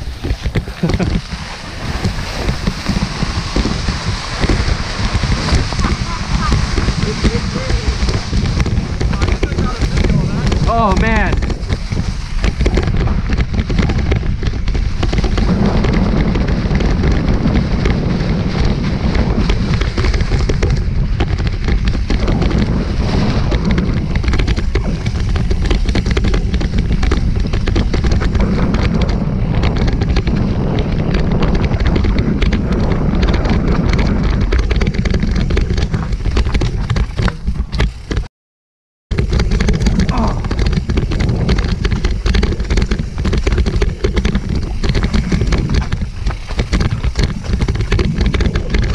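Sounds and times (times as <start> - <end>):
bike tyres knocking on rocks: 0.0 - 38.3, 39.1 - 48.9
wind buffeting microphone: 0.0 - 38.3, 39.1 - 48.9.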